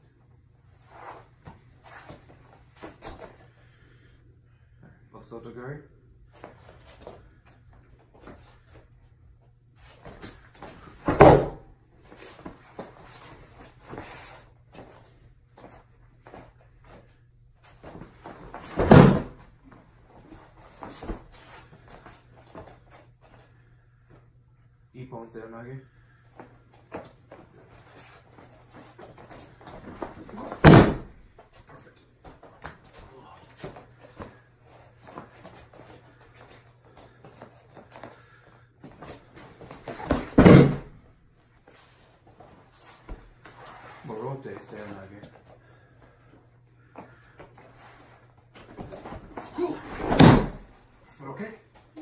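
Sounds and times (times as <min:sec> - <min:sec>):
body thud and breakfall slap on mat: 0:11.0 - 0:11.6, 0:17.9 - 0:19.4, 0:30.0 - 0:31.2, 0:39.7 - 0:41.0, 0:49.8 - 0:50.7.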